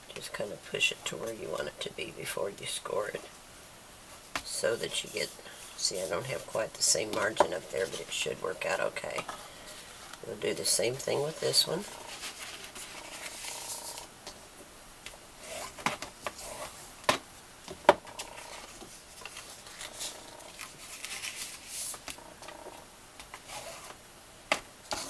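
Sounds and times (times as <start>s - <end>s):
bone folder rubbing paper: 12.0s - 14.0s, 23.4s - 24.0s
cardstock rustling and sliding: 12.0s - 14.1s, 18.2s - 22.2s, 23.2s - 24.0s.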